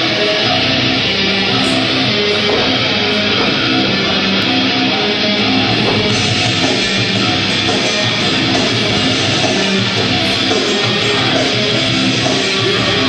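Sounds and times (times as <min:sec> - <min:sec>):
heavy rock music with electric guitar: 0:00.0 - 0:13.0.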